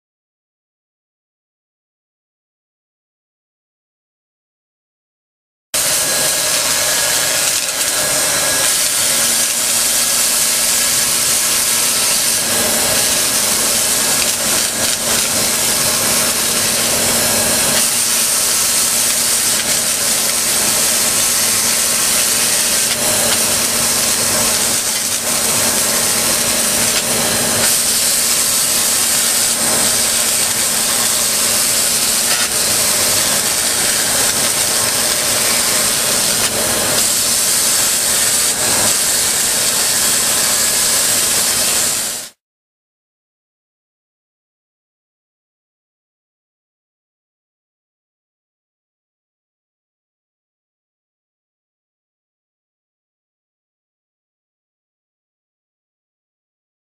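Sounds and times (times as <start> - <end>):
laser cleaner hissing: 5.8 - 42.4.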